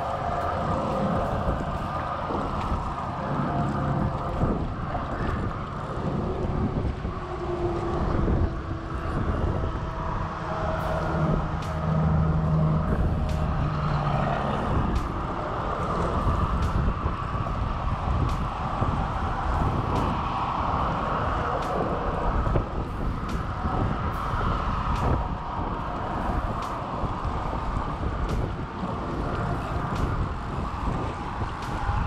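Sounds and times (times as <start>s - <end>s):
passing vehicle engine hum: 0.0s - 32.0s
road traffic rush: 0.0s - 32.0s.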